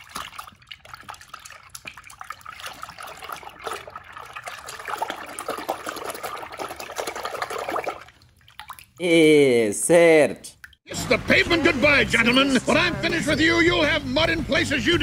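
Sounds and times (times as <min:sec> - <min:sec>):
water sloshing in plastic tub: 0:00.0 - 0:09.0.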